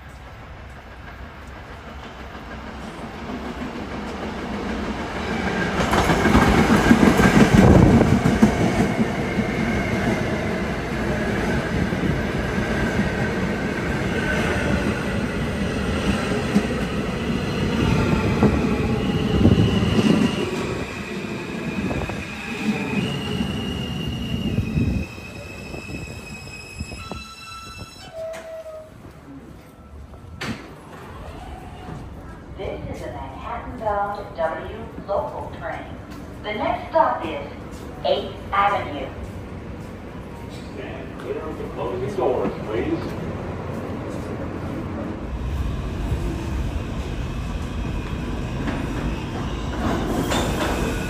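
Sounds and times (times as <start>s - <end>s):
subway train rumble and clatter: 0.0s - 51.0s
braking train whine: 16.4s - 31.0s, 45.1s - 51.0s.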